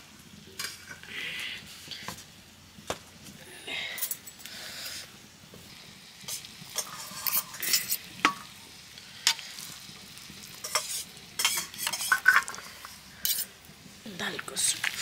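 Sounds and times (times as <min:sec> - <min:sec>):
utensil scraping in a pot: 0:06.2 - 0:08.4, 0:09.2 - 0:13.6.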